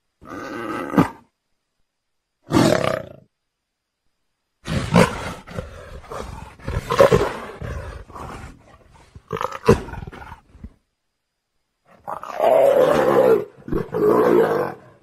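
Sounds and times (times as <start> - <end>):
big cat roaring and growling: 4.6 - 10.5, 12.0 - 15.0.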